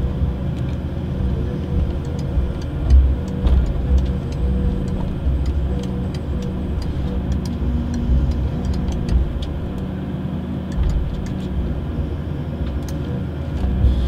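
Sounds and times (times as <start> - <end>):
harvester engine and hydraulic rumble: 0.0 - 14.0
sharp clicks and cracks: 2.0 - 9.9, 10.7 - 11.5.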